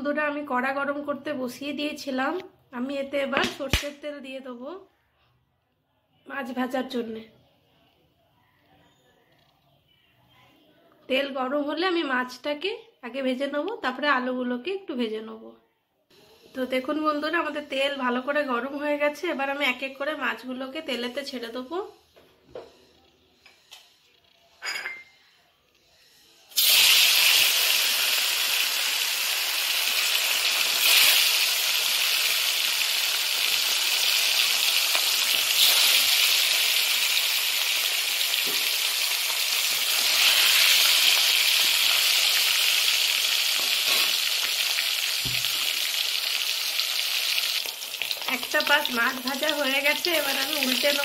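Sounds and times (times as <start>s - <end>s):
fish sizzling in hot oil: 26.5s - 51.0s.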